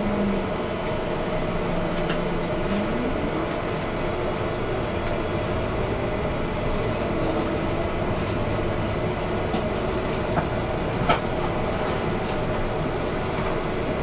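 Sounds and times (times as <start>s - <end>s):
bus engine and road rumble: 0.0s - 14.0s.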